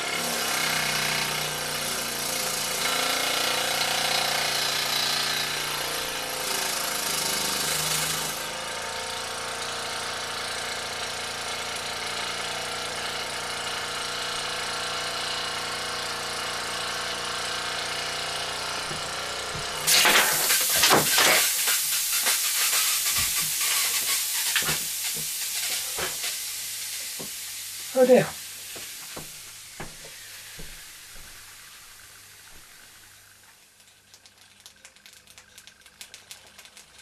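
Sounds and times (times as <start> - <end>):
steam hissing and spitting: 0.0 - 8.6, 17.7 - 37.0
toy steam engine running: 0.0 - 8.6, 9.2 - 29.3.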